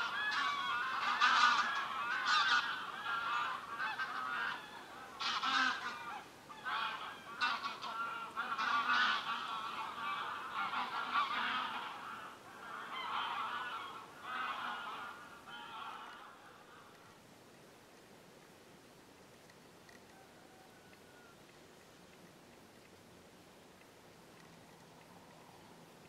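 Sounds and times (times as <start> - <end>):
geese honking: 0.0 - 17.2.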